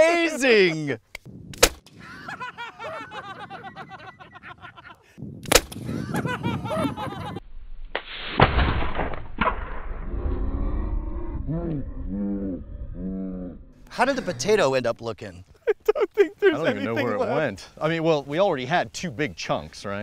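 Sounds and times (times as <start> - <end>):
sharp crack: 1.1 - 2.0, 5.4 - 5.9, 7.9 - 10.1
potato cannon blast: 5.4 - 5.8, 7.9 - 10.0.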